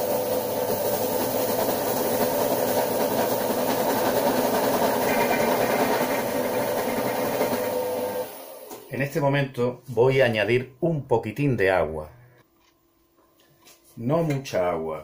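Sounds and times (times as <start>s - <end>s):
food processor motor humming: 0.0s - 8.9s
blades grinding paste: 1.4s - 8.3s.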